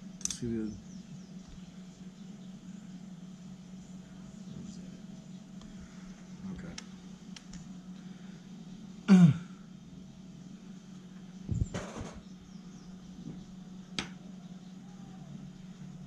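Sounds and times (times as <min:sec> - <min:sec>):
low hum: 0:00.0 - 0:16.0
sharp click: 0:00.2 - 0:00.4.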